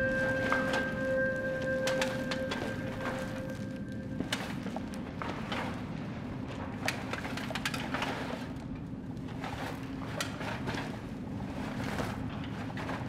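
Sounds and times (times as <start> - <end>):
low steady drone: 0.0 - 7.3
light clicks and crackles: 0.1 - 11.2.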